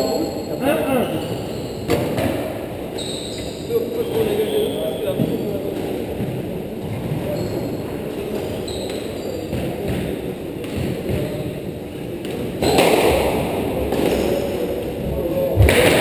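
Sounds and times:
shoes squeaking on wooden floor: 0:02.9 - 0:10.2.

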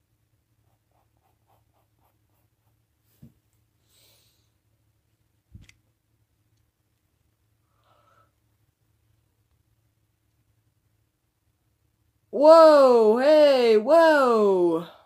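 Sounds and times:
pencil scratching on paper: 0:00.6 - 0:02.9.

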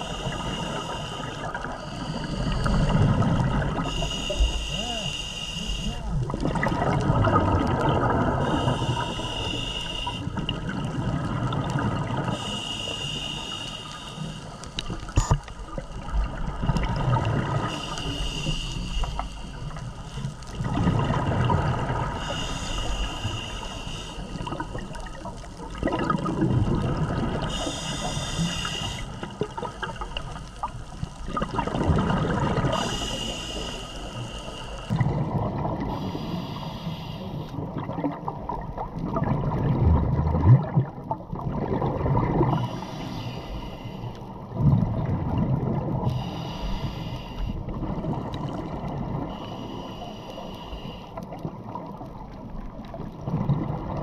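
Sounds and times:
regulator hiss: 0:00.0 - 0:02.9, 0:03.8 - 0:06.2, 0:08.4 - 0:10.4, 0:12.3 - 0:15.1, 0:17.6 - 0:20.4, 0:22.2 - 0:25.1, 0:27.4 - 0:30.0, 0:32.6 - 0:34.9, 0:35.9 - 0:37.6, 0:46.1 - 0:47.6
exhaled bubbles rushing: 0:01.5 - 0:04.0, 0:06.1 - 0:09.1, 0:10.3 - 0:12.4, 0:15.2 - 0:17.9, 0:20.5 - 0:22.2, 0:24.4 - 0:27.6, 0:29.2 - 0:33.0, 0:34.9 - 0:36.1, 0:37.6 - 0:42.7, 0:44.5 - 0:46.0, 0:47.7 - 0:49.3, 0:51.4 - 0:54.0.

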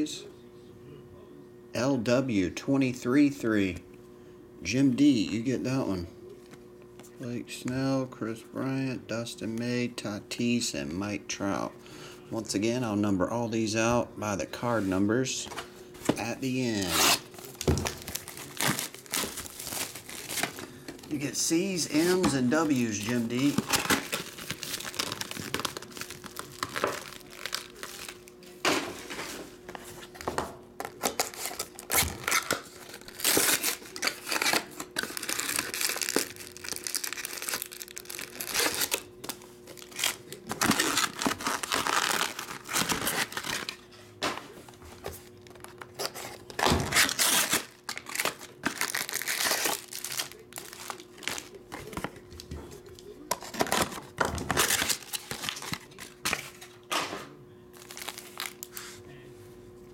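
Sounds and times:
wrappers crinkling: 0:16.2 - 0:28.4, 0:30.9 - 0:43.9, 0:45.2 - 0:52.1, 0:53.4 - 0:56.3, 0:57.8 - 0:59.0
cardboard boxes tearing: 0:16.6 - 0:20.6, 0:22.0 - 0:28.1, 0:31.1 - 0:39.1, 0:39.8 - 0:43.7, 0:46.0 - 0:51.5.

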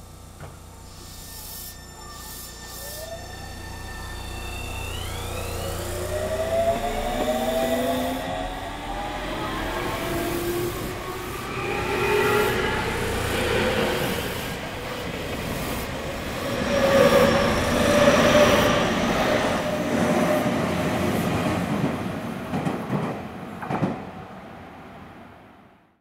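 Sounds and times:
inverter motor whine: 0:00.0 - 0:20.6
electric train running past: 0:00.2 - 0:25.8.

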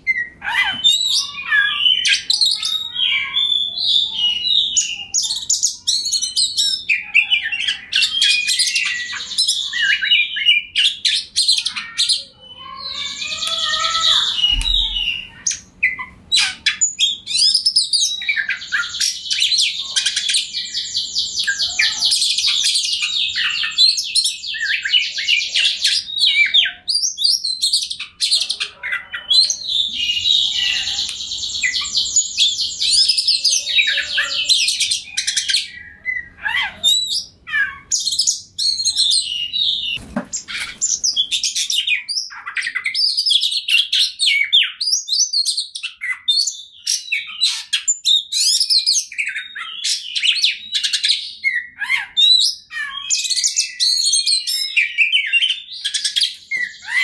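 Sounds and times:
bird singing trills and whistles: 0:00.0 - 0:57.0.

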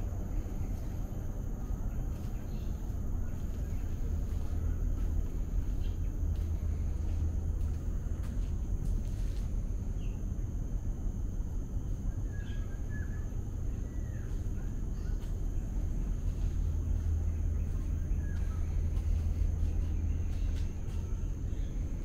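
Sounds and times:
constant high tone: 0:00.0 - 0:22.0
low steady rumble: 0:00.0 - 0:22.0
bird chirps: 0:12.2 - 0:15.7, 0:17.0 - 0:21.8.

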